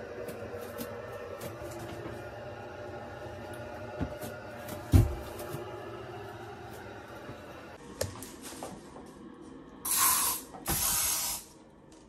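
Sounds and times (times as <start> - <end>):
spray bottle hissing: 9.9 - 11.5.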